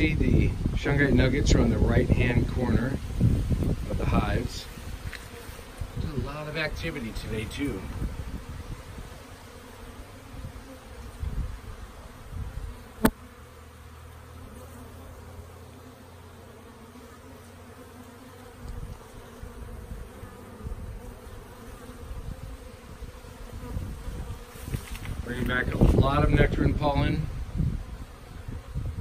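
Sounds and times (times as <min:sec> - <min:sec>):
low rumbling on microphone: 0:00.0 - 0:05.0
honeybees buzzing: 0:00.0 - 0:29.0.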